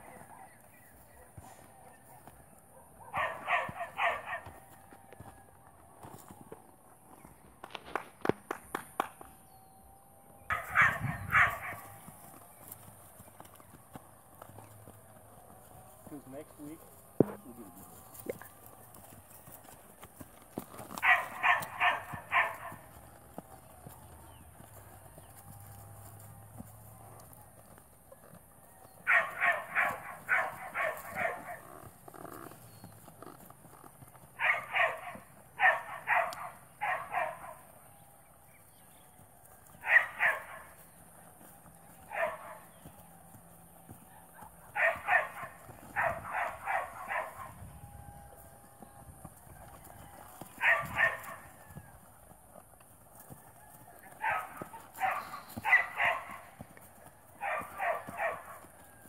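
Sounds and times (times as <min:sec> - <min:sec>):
hooves clopping on dirt: 0:00.0 - 0:59.0
dog barking: 0:02.7 - 0:04.6, 0:10.5 - 0:11.9, 0:21.0 - 0:22.8, 0:29.1 - 0:31.6, 0:34.4 - 0:37.6, 0:39.8 - 0:40.7, 0:42.1 - 0:42.6, 0:44.1 - 0:47.6, 0:50.6 - 0:51.4, 0:54.2 - 0:56.5, 0:57.4 - 0:58.6.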